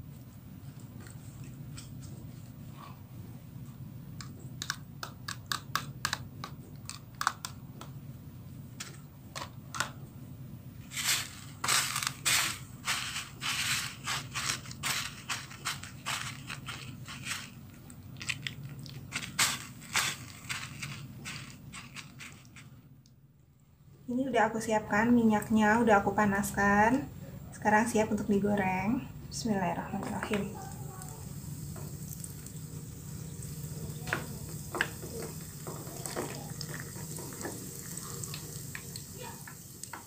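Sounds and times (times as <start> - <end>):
low steady hum: 0.0 - 40.0
breadcrumbs crunching under fingers: 11.0 - 22.8.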